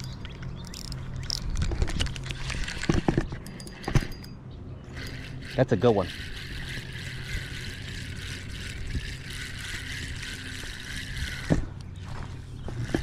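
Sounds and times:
spinning reel whirring: 2.2s - 13.0s.

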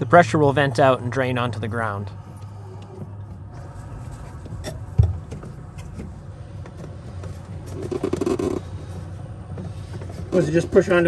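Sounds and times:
low steady hum: 0.0s - 11.0s
plastic hoses clicking and rubbing: 4.2s - 10.3s.

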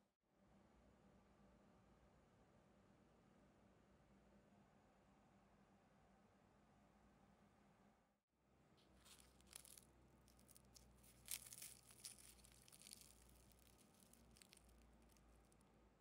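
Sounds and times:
pastry crackling as torn: 8.8s - 15.6s.

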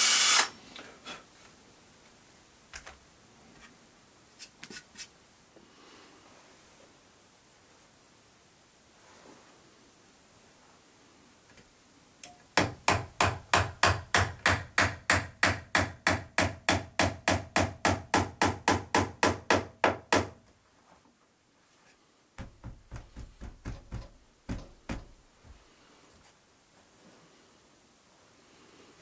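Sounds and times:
hammer driving nails into wood: 12.6s - 20.4s, 22.4s - 25.2s.

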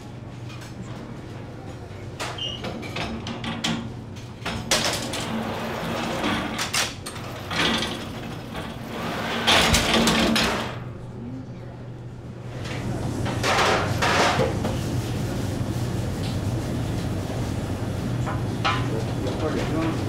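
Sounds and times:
low hum of bakery machinery: 0.0s - 20.0s
oven loader sliding on metal rails: 4.7s - 10.8s.

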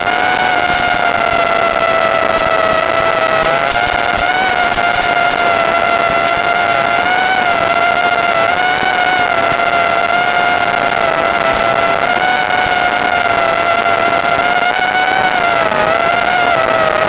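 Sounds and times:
quadcopter motors whining: 0.0s - 17.0s.

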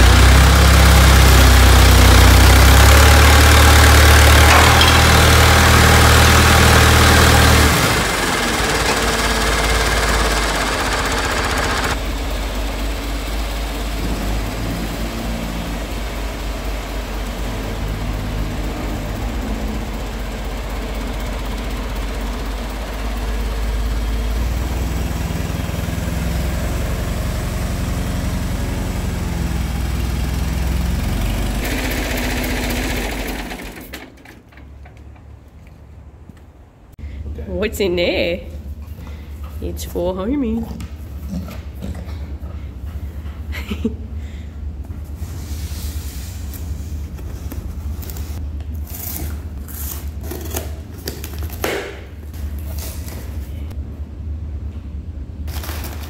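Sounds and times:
diesel crane engine running: 0.0s - 37.3s.

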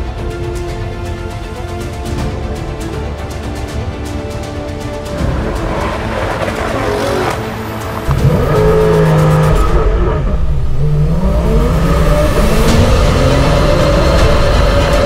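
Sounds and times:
car engines accelerating: 5.0s - 15.0s.

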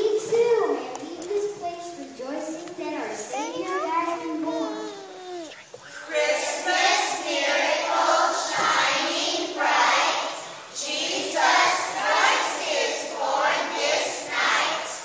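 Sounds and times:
children's choir singing: 5.9s - 15.0s.

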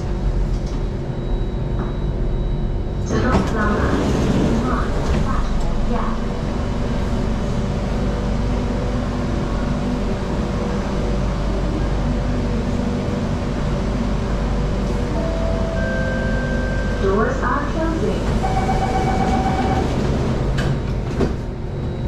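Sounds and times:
train wheels and motors rumbling: 0.0s - 22.0s.

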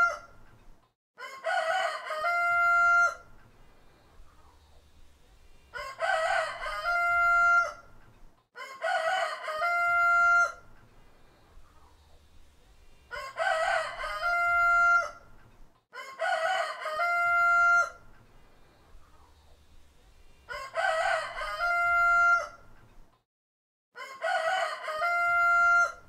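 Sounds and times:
rooster crowing: 1.2s - 3.3s, 5.7s - 8.0s, 8.6s - 10.7s, 13.1s - 15.3s, 15.9s - 18.1s, 20.5s - 22.7s, 24.0s - 26.0s.

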